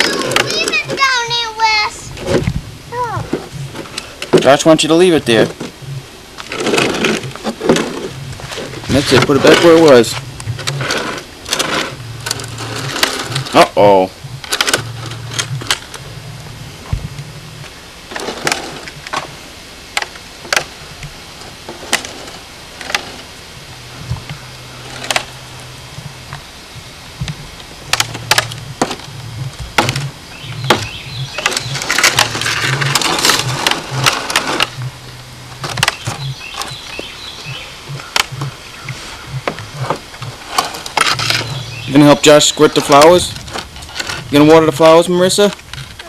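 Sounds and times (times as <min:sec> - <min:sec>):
wheel rolling rattle: 0:00.0 - 0:01.4, 0:06.4 - 0:17.4, 0:18.1 - 0:19.4, 0:20.0 - 0:26.4, 0:27.3 - 0:38.5, 0:39.2 - 0:46.0
plastic toy wheelbarrow clattering: 0:31.4 - 0:34.7.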